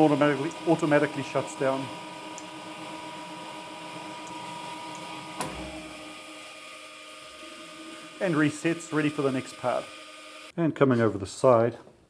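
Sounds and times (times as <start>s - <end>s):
grinder humming and whining: 0.0s - 10.5s
machine clunk: 5.4s - 5.8s.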